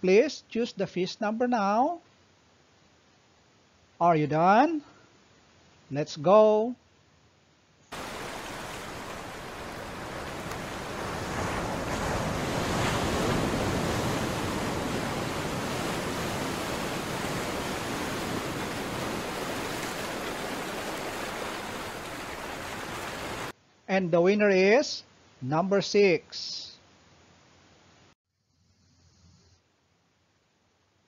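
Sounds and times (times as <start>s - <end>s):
ocean surf waves: 7.9s - 23.6s.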